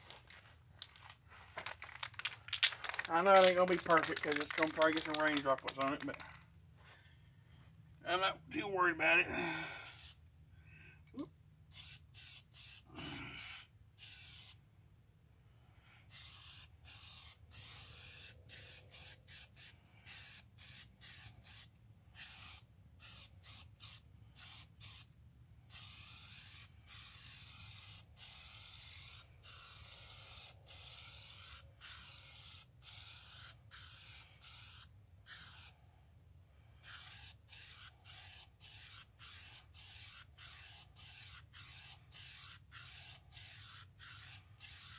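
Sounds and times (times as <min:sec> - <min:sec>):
spray-paint can hissing: 0:09.9 - 0:10.2, 0:11.7 - 0:14.6, 0:16.1 - 0:25.1, 0:25.7 - 0:35.7, 0:36.8 - 0:44.9.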